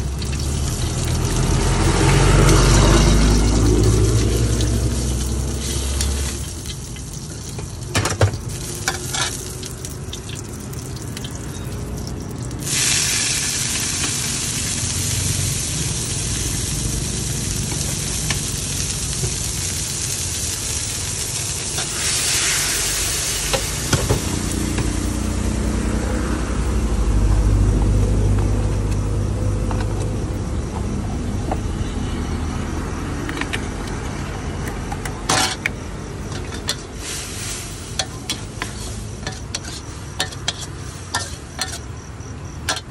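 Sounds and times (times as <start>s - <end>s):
vegetables sizzling in a wok: 0.0s - 29.2s, 35.2s - 42.9s
metal spatula clinking on wok: 38.0s - 41.9s.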